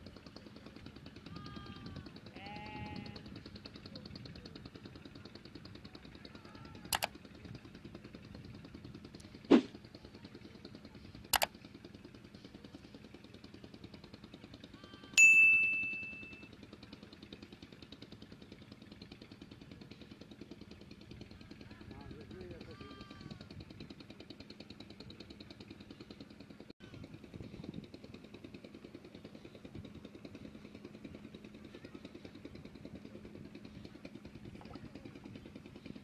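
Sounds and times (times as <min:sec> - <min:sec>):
faint outdoor background: 0:00.0 - 0:36.0
sharp clicks: 0:06.9 - 0:07.1
loud bell-like ding: 0:15.2 - 0:16.5.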